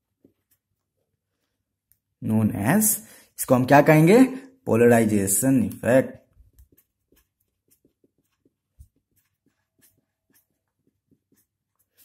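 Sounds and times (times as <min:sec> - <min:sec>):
marker pen scratching on whiteboard: 0:00.0 - 0:01.7, 0:06.2 - 0:12.0.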